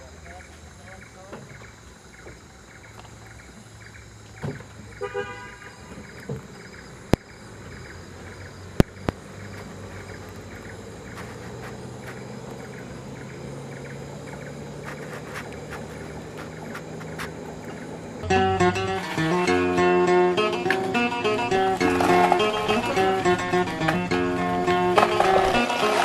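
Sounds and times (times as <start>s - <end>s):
horn toot: 5.0s - 6.0s
vehicle engine running: 5.8s - 26.0s.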